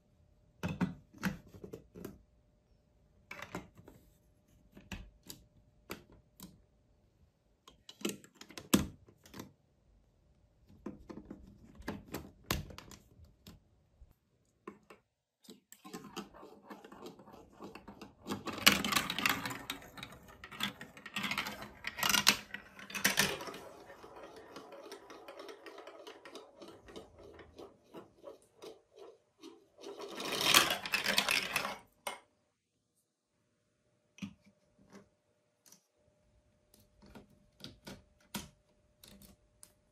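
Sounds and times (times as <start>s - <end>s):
plastic blocks clicking together: 14.7s - 28.8s, 29.8s - 32.2s
marble rolling down plastic track: 15.8s - 31.9s.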